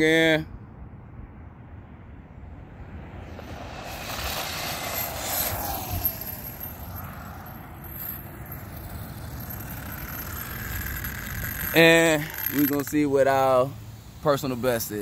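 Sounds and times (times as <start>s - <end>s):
tyre hiss on asphalt: 3.1s - 6.6s, 12.0s - 15.0s
rc car motor whine: 3.4s - 13.1s.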